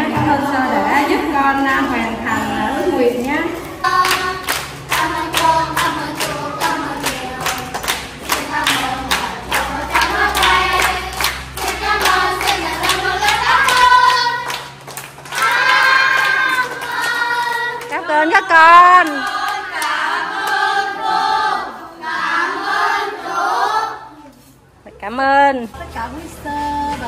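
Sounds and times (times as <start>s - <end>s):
children singing together: 3.6s - 17.9s, 19.2s - 24.3s
hands clapping in time: 4.0s - 18.0s.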